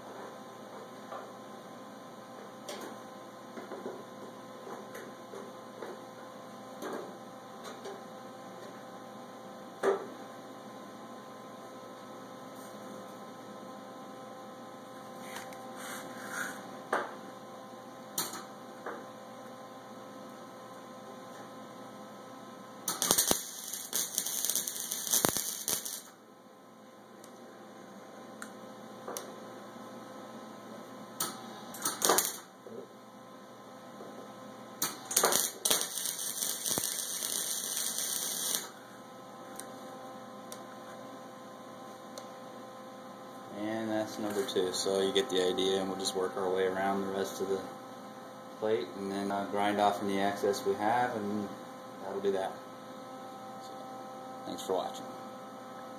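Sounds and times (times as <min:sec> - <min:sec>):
steady electrical hum: 0:00.0 - 0:55.9
welding arc crackling: 0:22.8 - 0:26.2, 0:31.7 - 0:32.5, 0:34.8 - 0:38.8.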